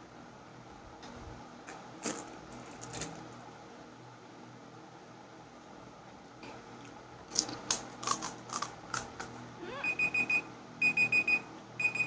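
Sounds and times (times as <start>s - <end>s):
crisp shells cracking: 7.3s - 9.4s
timer alarm beeping: 9.7s - 12.0s.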